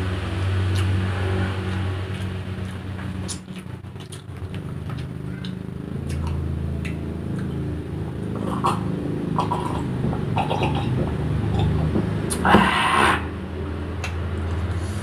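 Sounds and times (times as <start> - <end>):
motor hum: 0.0 - 15.0
person gulping water: 8.4 - 13.2.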